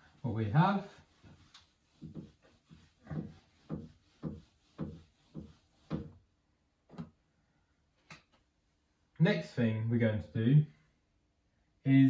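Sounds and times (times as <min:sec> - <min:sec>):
eraser wiping a whiteboard: 0:00.0 - 0:06.3.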